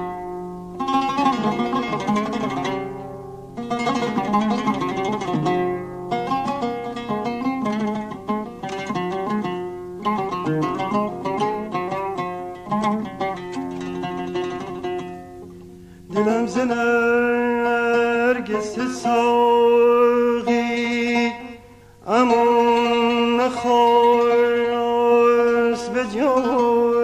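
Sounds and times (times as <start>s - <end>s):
plucked oud notes: 0.0s - 27.0s
man singing long held notes: 16.1s - 27.0s.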